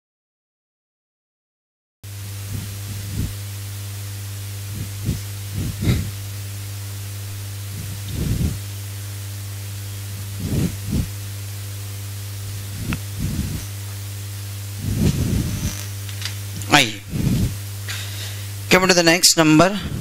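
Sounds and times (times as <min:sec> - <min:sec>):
electrical hum: 0:02.0 - 0:20.0
whiteboard being wiped: 0:14.8 - 0:16.0.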